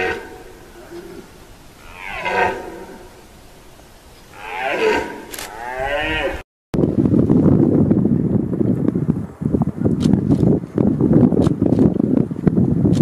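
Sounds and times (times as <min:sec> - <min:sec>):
deer stag roaring: 0:00.0 - 0:03.3, 0:04.3 - 0:06.4
wind noise on microphone: 0:00.0 - 0:13.0.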